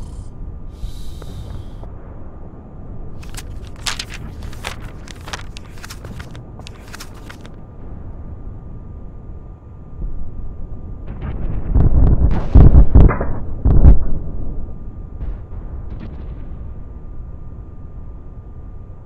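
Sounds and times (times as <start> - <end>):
steady low rumble: 0.0 - 19.0
paper crackling: 3.2 - 7.6.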